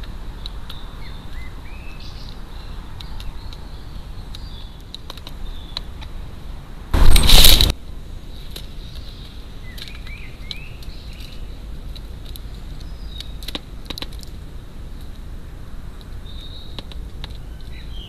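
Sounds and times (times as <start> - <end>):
loud rush of noise: 6.9 - 7.7
faint bird chirps: 16.2 - 18.0.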